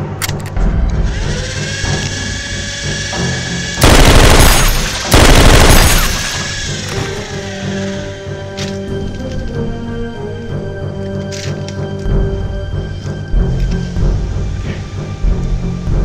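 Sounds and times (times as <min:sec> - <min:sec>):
background music: 0:00.0 - 0:16.0
automatic gunfire: 0:03.8 - 0:06.5.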